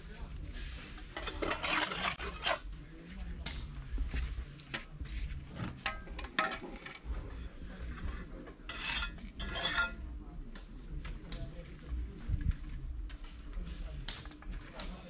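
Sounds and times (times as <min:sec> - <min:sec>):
rough scraping on hard surface: 0:00.5 - 0:02.7, 0:07.1 - 0:10.0.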